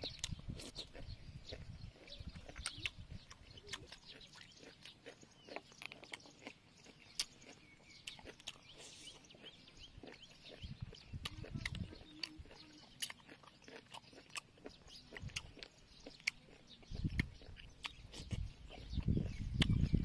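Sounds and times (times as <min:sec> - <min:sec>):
snail shells clicking: 0:00.0 - 0:08.8
person chewing: 0:00.0 - 0:20.0.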